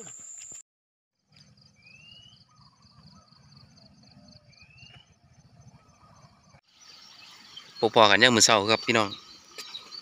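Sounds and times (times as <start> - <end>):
bird rising whistled call: 1.8 - 3.5.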